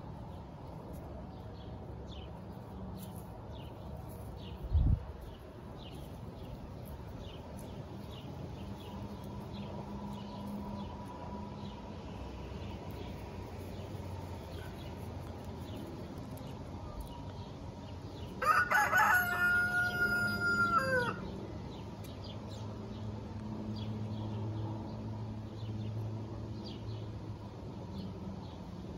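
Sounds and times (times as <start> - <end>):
rooster crowing: 18.4 - 21.3.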